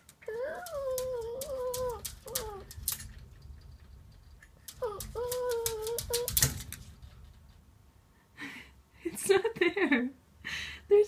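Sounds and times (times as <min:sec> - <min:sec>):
claws clicking on wooden floor: 0:00.0 - 0:07.6
small dog whining: 0:00.2 - 0:02.8, 0:04.7 - 0:06.5.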